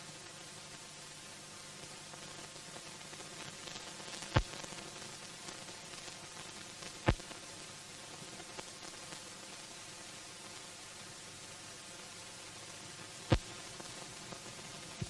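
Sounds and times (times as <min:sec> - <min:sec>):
film soundtrack hiss and crackle: 0:00.0 - 0:15.0
sharp pops: 0:13.3 - 0:13.6.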